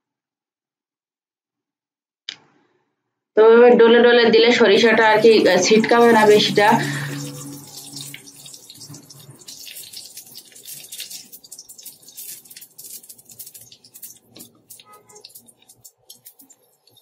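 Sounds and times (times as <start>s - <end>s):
mustard seeds sizzling in oil: 5.1s - 17.0s.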